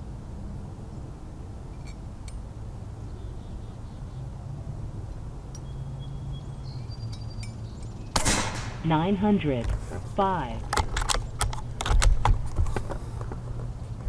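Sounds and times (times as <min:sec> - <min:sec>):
faint high chirps and clicks: 0:06.7 - 0:08.0
steady low rumble: 0:08.2 - 0:14.0.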